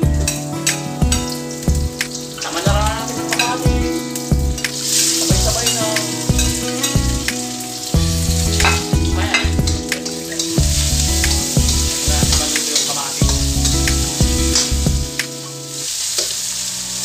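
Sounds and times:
low background music: 0.0 - 17.0
vegetables sizzling in hot oil: 0.3 - 17.0
spatula scraping and knocking pan: 8.4 - 15.0.

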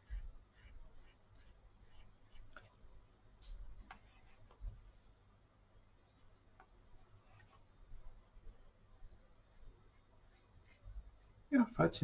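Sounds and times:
paintbrush strokes on paper: 0.0 - 5.0, 6.9 - 8.2, 9.4 - 12.0.

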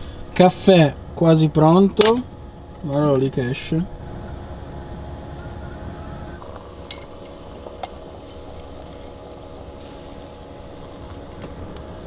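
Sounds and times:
moka pot gurgling and sputtering: 3.4 - 12.0.

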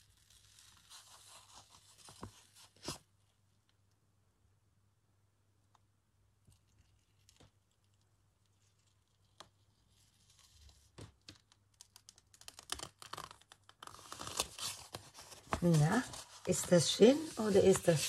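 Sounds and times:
paper peeling off tacky paint: 8.6 - 18.0.

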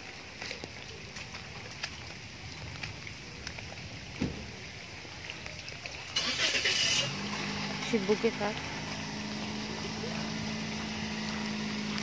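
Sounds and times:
small drip ticks: 0.0 - 6.3, 7.1 - 12.0
rain hissing on wet paving: 0.0 - 12.0
thump: 4.2 - 4.5.

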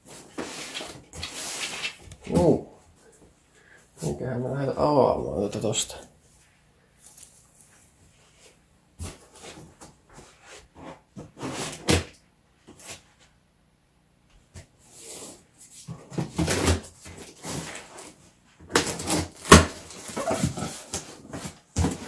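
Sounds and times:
packing tape tearing: 16.2 - 18.0, 18.7 - 22.0.

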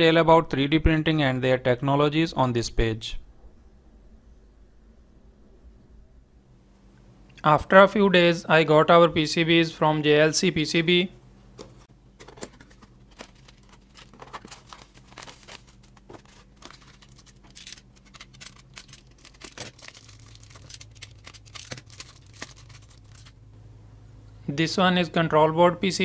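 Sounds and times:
bubble-wrap bags crinkling: 12.5 - 23.4.

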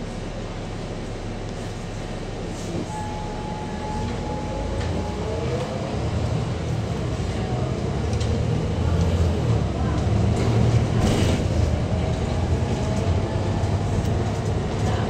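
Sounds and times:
bus engine and road rumble: 0.0 - 15.0
steady high tone: 1.7 - 6.9
whine rising in pitch: 2.2 - 6.5.

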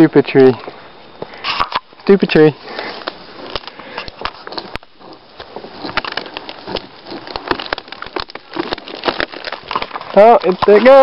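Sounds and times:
brush rustling: 1.2 - 11.0
wood cracking and splintering: 2.6 - 11.0.

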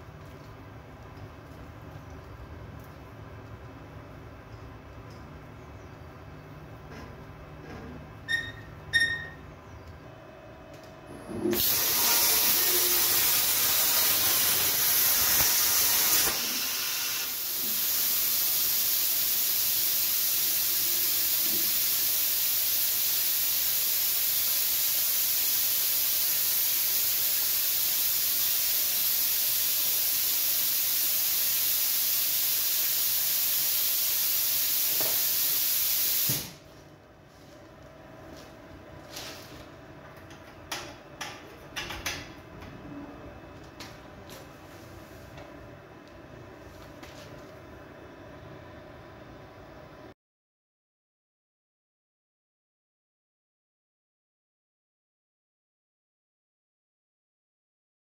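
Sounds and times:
plasma torch hissing: 11.5 - 36.6.

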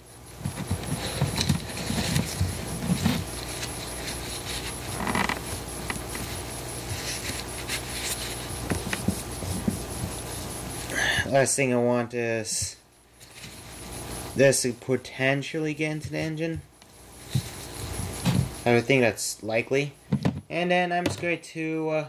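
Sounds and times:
steady low hum: 0.0 - 22.0
rag rubbing and rustling: 0.3 - 10.9, 13.2 - 14.4, 16.0 - 18.9.

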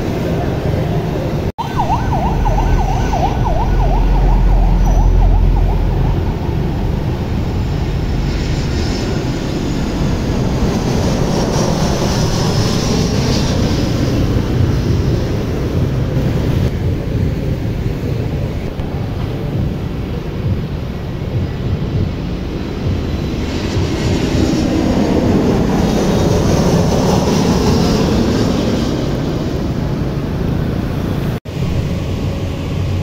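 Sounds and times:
city street traffic: 0.0 - 33.0
siren yelping: 1.6 - 7.8
deep rumble: 1.6 - 28.8.

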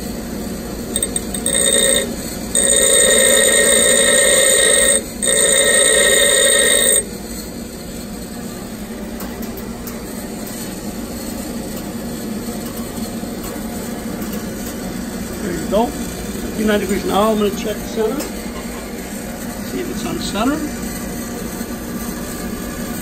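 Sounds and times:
bench grinder humming: 1.0 - 7.1
drill bit grinding on wheel: 1.0 - 7.1.

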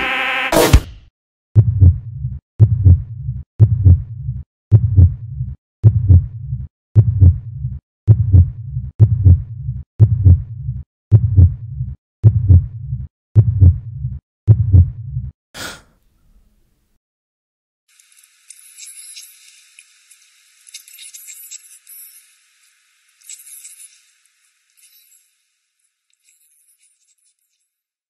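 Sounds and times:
heartbeat double thumps: 1.6 - 15.1.

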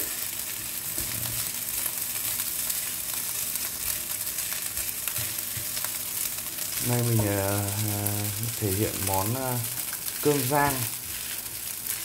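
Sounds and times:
rice and egg sizzling in a frying pan: 0.0 - 12.0
wooden spoon scraping and knocking pan: 4.6 - 5.8.

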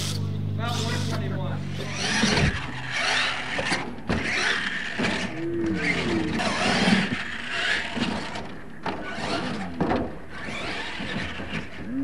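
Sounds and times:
tyres spraying dirt: 0.0 - 2.5
electric motor whining: 0.0 - 12.0.

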